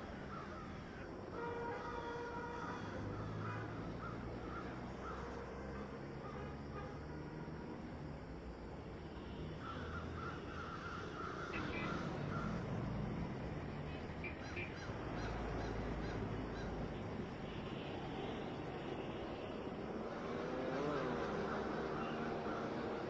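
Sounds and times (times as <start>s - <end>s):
crow-like bird cawing: 0.0s - 6.5s, 9.5s - 12.9s, 14.3s - 17.0s, 21.3s - 23.0s.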